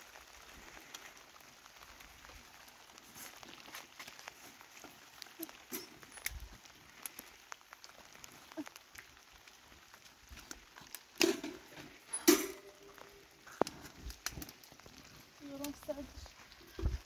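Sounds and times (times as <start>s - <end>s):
heater knocking on stony ground: 11.2s - 12.8s.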